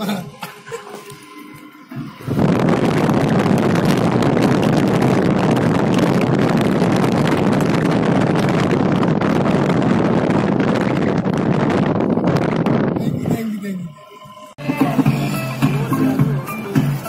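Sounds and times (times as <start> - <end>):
vehicle noise: 0.6 - 17.0
wind rushing through car window: 2.0 - 13.6.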